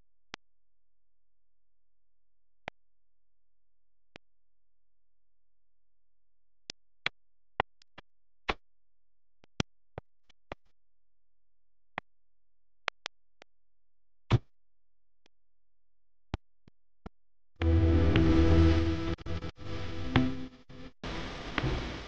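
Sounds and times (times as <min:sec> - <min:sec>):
loud music: 0:17.6 - 0:20.5.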